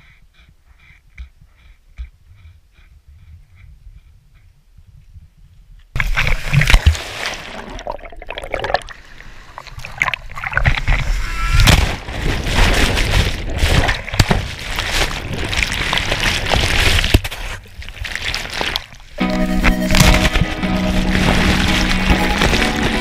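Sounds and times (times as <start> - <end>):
breaking waves splashing: 6.0 - 10.0, 10.6 - 17.3, 18.2 - 23.0.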